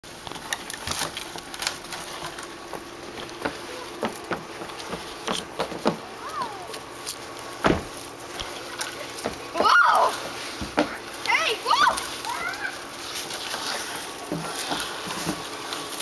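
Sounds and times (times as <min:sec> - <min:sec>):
footsteps on hollow plastic pipe: 0:00.1 - 0:12.3.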